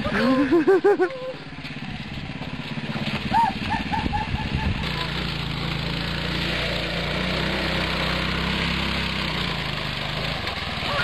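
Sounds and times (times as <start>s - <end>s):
go-kart engine running: 0.0s - 11.0s
dog yipping: 3.3s - 4.7s.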